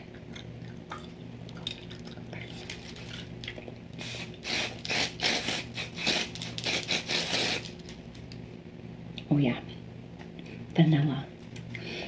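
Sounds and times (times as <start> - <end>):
spray bottle spritzes: 4.0 - 7.8.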